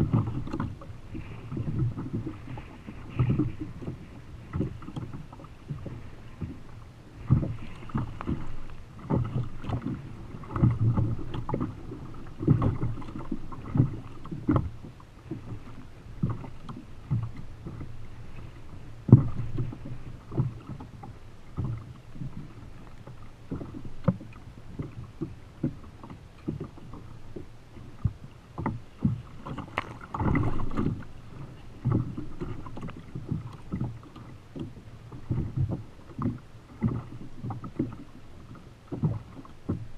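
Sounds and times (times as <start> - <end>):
water slapping against kayak hull: 0.0 - 39.9.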